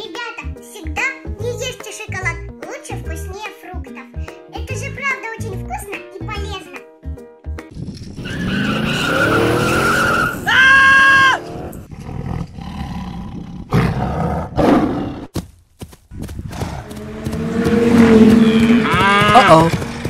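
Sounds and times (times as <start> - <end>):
animal roar: 11.0 - 15.3, 16.5 - 19.7.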